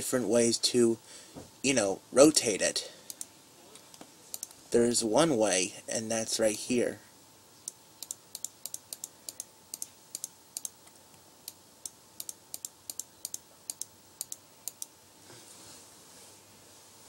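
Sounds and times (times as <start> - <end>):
computer keys clicking: 4.3 - 4.5, 8.0 - 10.8, 11.4 - 14.9.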